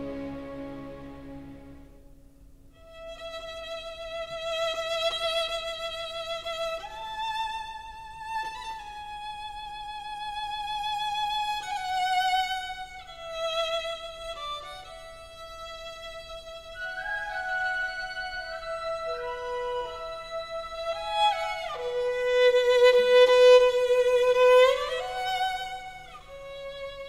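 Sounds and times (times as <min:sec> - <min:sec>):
slow melody with vibrato: 0:00.0 - 0:02.1.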